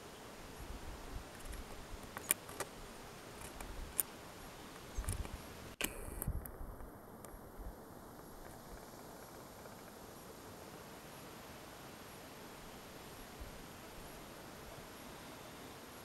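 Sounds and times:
faint outdoor background hiss: 0.0s - 16.0s
sharp clicks: 1.4s - 2.7s, 4.8s - 6.5s
wind rumbling on microphone: 4.9s - 9.9s.

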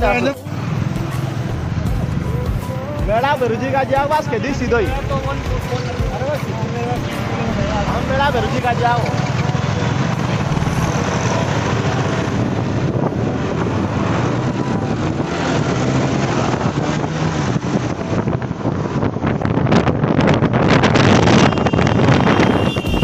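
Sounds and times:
motorcycle engine running: 0.0s - 19.9s
wind buffeting microphone: 9.4s - 23.0s.

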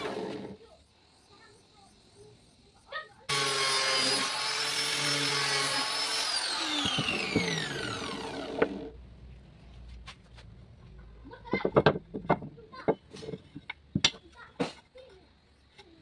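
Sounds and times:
angle grinder sanding wood: 3.3s - 9.0s.

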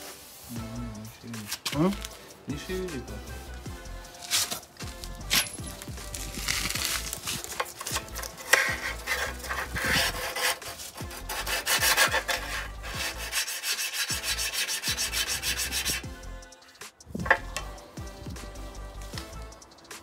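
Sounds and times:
hand block scraping tile edge: 6.4s - 16.0s.

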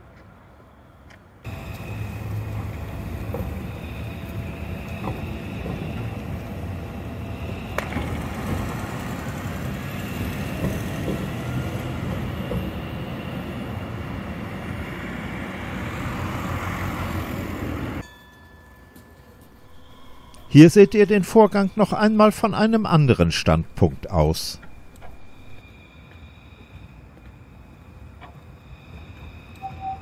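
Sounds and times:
tram wheels rumbling on rails: 1.2s - 18.1s, 19.4s - 30.0s
car passing: 1.4s - 18.0s.

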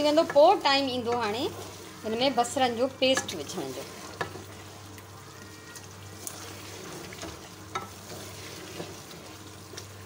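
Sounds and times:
curry sizzling in a pot: 0.0s - 10.0s
wooden spoon scraping a pot: 6.4s - 9.4s.

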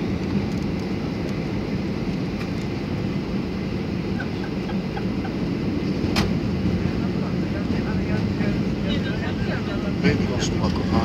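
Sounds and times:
airliner cabin engine hum: 0.0s - 11.0s.

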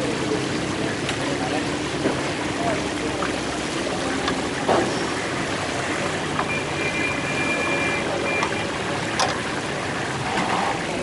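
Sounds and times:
fish sizzling in hot oil: 0.0s - 11.0s.

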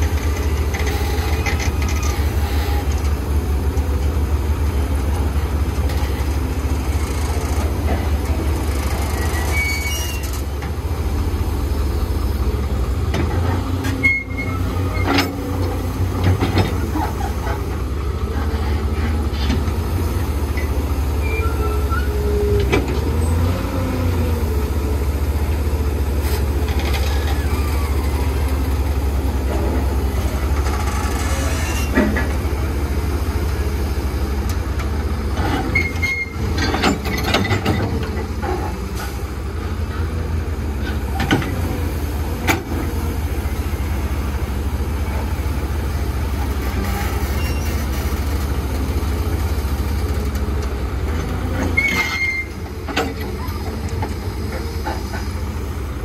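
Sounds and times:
excavator diesel engine rumbling: 0.0s - 56.0s
machine squeaks: 9.1s - 10.4s, 21.2s - 22.2s, 27.0s - 28.4s.

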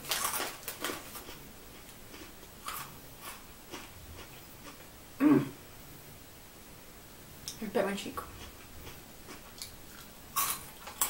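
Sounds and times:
crunchy snack chewing: 0.0s - 4.8s, 8.3s - 11.0s.

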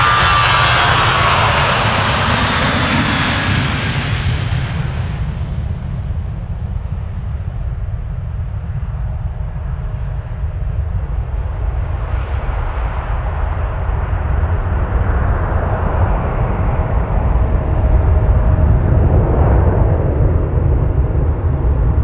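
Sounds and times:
jet engine roar: 0.0s - 22.0s
jet engine rumble: 0.0s - 22.0s.

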